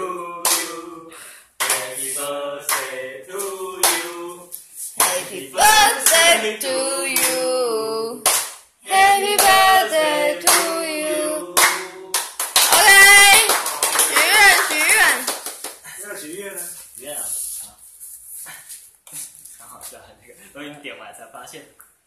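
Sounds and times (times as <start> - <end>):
people singing a birthday song: 0.0 - 15.2
hands clapping: 0.4 - 0.8, 1.6 - 1.9, 2.7 - 4.1, 5.0 - 6.4, 7.1 - 7.4, 8.2 - 10.8, 11.6 - 15.8.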